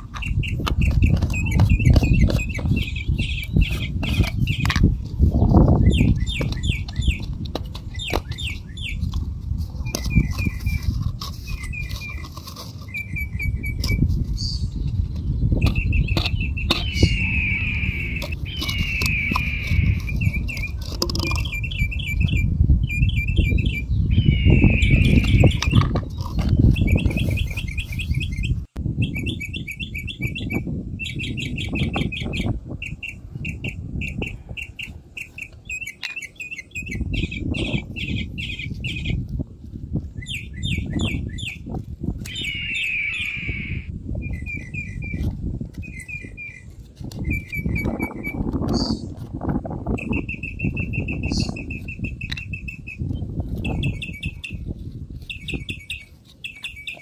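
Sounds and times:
birds chirping in trills: 0.0 - 9.2, 9.8 - 39.2, 40.1 - 49.1, 49.9 - 57.0
steady low rumble: 12.9 - 20.8.

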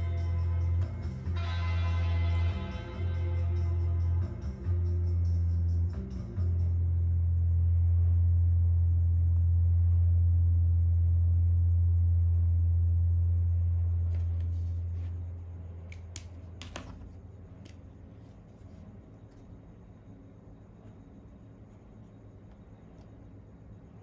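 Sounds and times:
loud steady low hum: 0.0 - 24.0
pen and sketchbook clicks and taps: 15.9 - 17.0.

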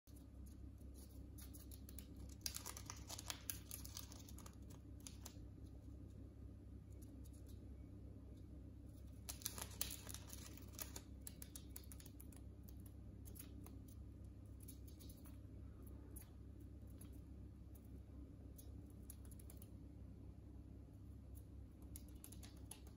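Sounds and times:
bird pecking at newspaper: 0.4 - 5.4, 9.1 - 13.8.

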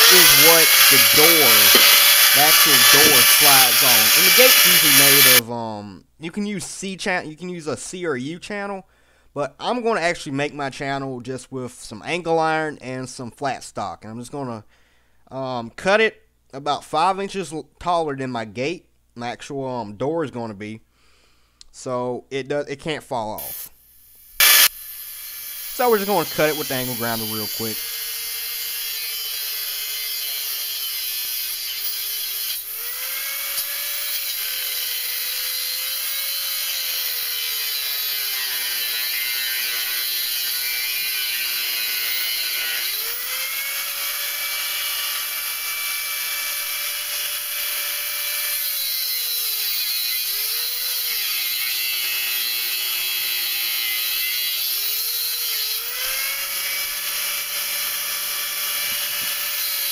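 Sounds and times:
angle grinder cutting metal: 0.0 - 5.4, 23.4 - 59.9.

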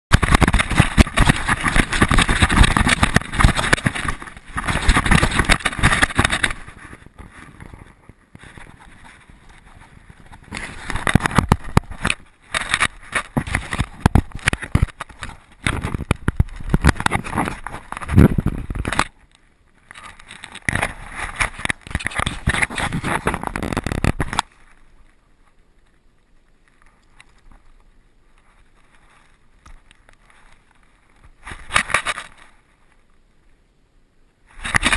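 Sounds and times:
scraping and knocking: 0.1 - 7.9
wind buffeting camera: 0.1 - 25.1.

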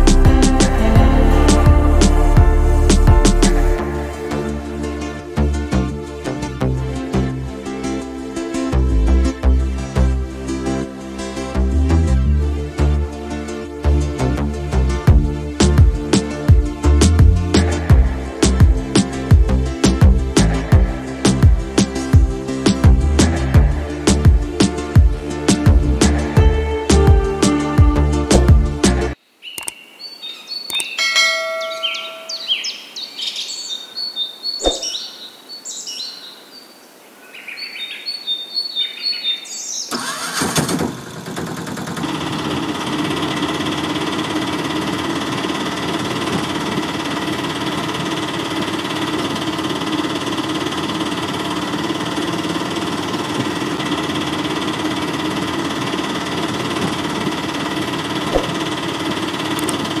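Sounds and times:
birds chirping: 29.4 - 40.0
single click: 29.6 - 29.8, 30.7 - 31.0, 34.6 - 35.0.

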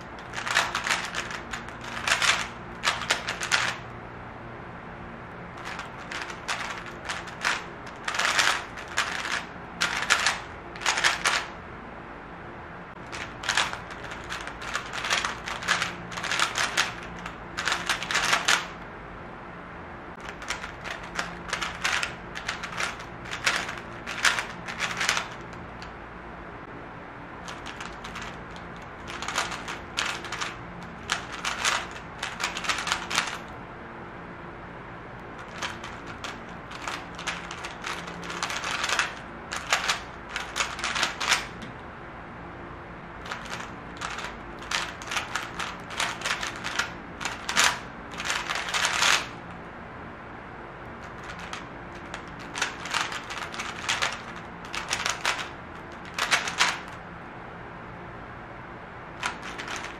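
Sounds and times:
speed cube plastic clicking: 0.0 - 3.9, 5.6 - 11.6, 13.0 - 18.8, 20.2 - 25.9, 27.4 - 33.6, 35.4 - 41.7, 43.2 - 49.4, 51.0 - 57.0, 59.2 - 59.9.

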